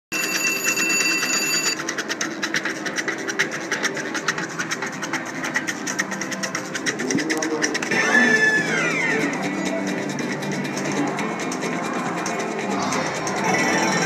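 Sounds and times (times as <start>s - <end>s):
slot machine chiming tone: 0.1s - 1.9s, 13.4s - 14.0s.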